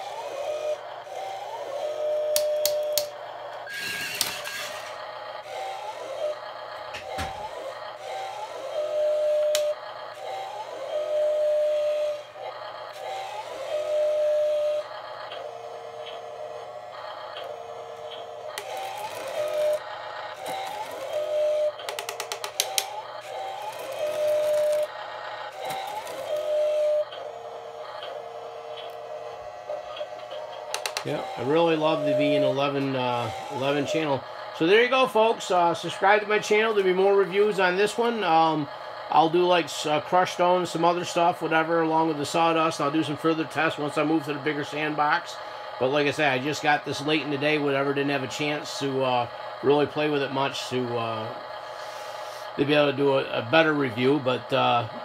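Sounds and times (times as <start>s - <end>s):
short noisy whir: 0.0s - 55.0s
sharp clicks: 2.3s - 3.1s, 21.8s - 23.0s
simulated engine hum from speaker: 4.8s - 55.0s
rapid clicks: 17.3s - 24.9s.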